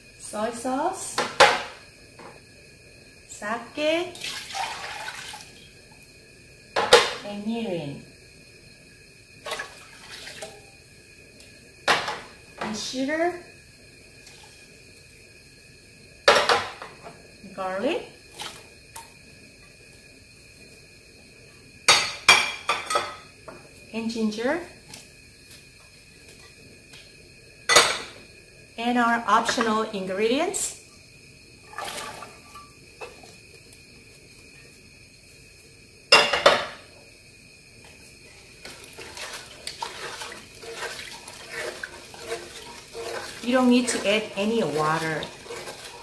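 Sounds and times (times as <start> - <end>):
glass dish clattering: 21.9 - 23.2, 36.1 - 36.8
liquid sloshing: 31.6 - 32.6, 38.6 - 46.0
wooden spoon stirring in a pot: 37.8 - 46.0.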